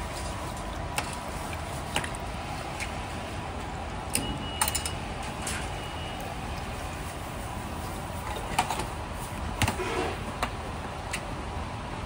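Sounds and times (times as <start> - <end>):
kitchen background noise: 4.1 - 11.3.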